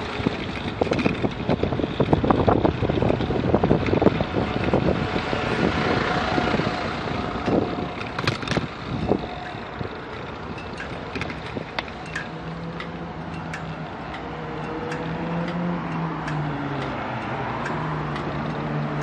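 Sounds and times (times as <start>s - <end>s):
bicycle knocks and rattles: 0.0s - 19.0s
road traffic: 0.0s - 19.0s
wind buffeting microphone: 0.0s - 19.0s
sharp clicks: 7.4s - 19.0s.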